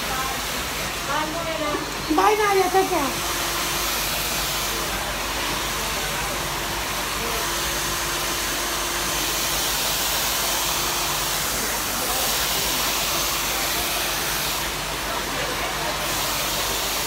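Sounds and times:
hair dryer blowing air: 0:00.0 - 0:17.0.

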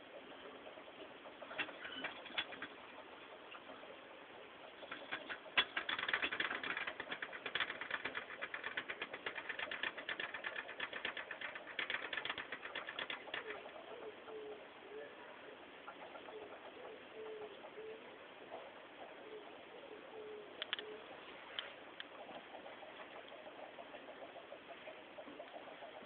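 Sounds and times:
gerbil scrabbling in bedding: 0:04.8 - 0:13.8
faint cooing: 0:13.3 - 0:15.6, 0:16.2 - 0:21.2.

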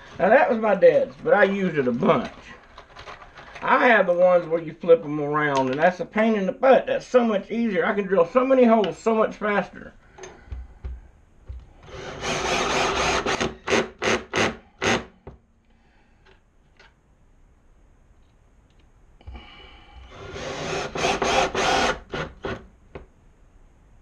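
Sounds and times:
cordless drill boring wood: 0:11.8 - 0:15.1, 0:20.1 - 0:22.6.

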